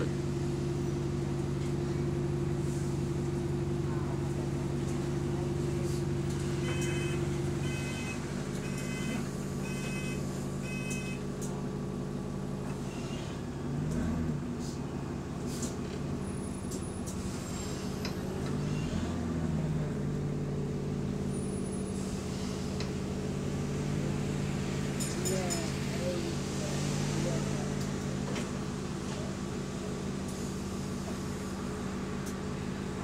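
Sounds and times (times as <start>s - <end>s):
bus engine and fan humming: 0.0s - 33.0s.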